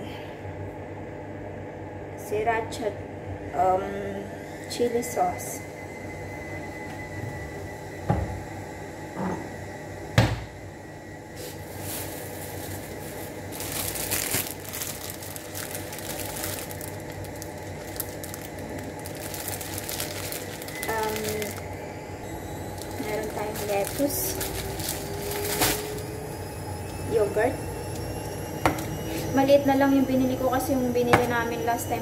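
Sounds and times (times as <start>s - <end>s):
plastic bags rustling: 11.4s - 21.8s, 22.6s - 27.5s.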